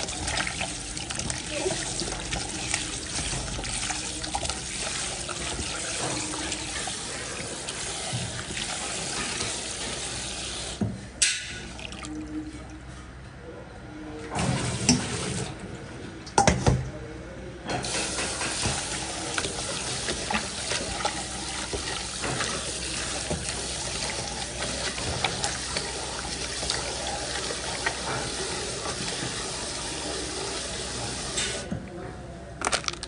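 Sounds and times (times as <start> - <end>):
hands rubbing and rinsing meat: 0.0 - 10.8, 17.8 - 31.6
tap water running into steel bowl: 0.0 - 12.1, 17.8 - 31.6.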